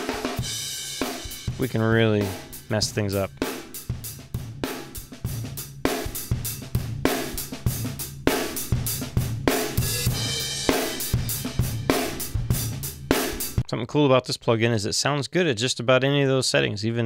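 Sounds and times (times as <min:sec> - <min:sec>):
compressed drum kit playing: 0:00.0 - 0:13.7
cymbal crash: 0:09.8 - 0:12.4.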